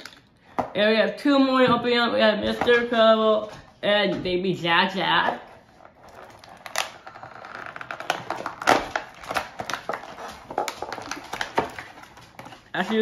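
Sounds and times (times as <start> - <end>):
packaging crinkling and rustling: 5.5 - 13.0.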